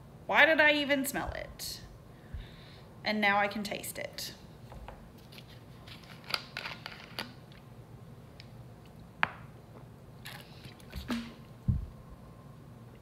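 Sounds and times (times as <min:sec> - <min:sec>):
sipping and swallowing: 0:10.2 - 0:11.4.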